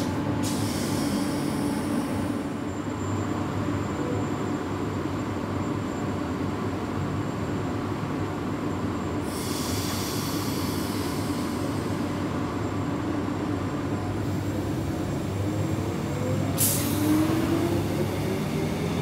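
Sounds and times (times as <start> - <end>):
train low rumble with hiss: 0.0 - 19.0
train whine pulling away: 0.0 - 19.0
burst of air hiss: 9.3 - 12.0.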